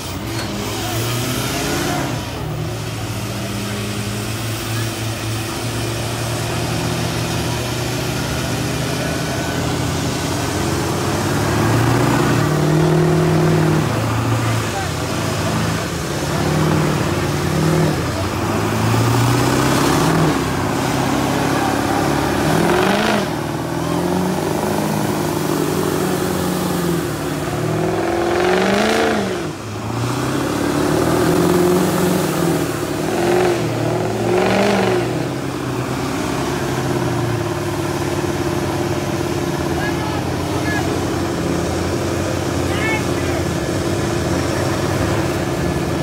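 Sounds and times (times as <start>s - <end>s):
truck engines revving: 0.0s - 46.0s.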